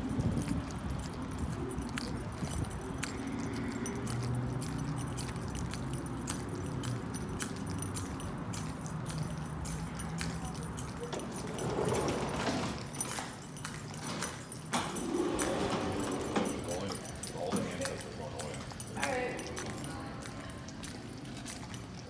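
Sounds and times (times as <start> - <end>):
keys jangling: 0.0 - 22.0.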